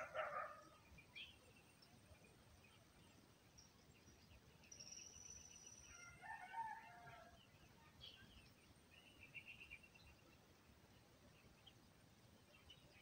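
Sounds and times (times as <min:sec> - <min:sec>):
rooster crowing: 0:06.0 - 0:07.3.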